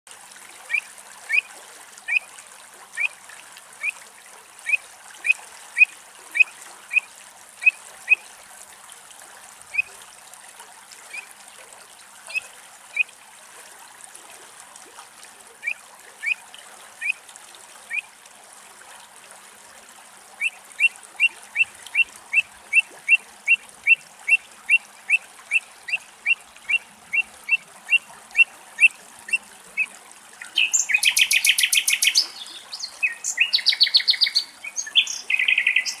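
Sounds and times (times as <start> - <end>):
bird fluting calls: 4.6 - 8.2, 20.4 - 36.0.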